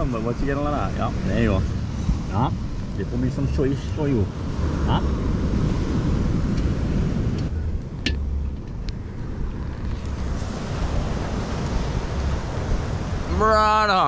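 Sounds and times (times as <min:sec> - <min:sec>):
wind buffeting microphone: 0:00.0 - 0:14.0
surf breaking on beach: 0:10.1 - 0:14.0.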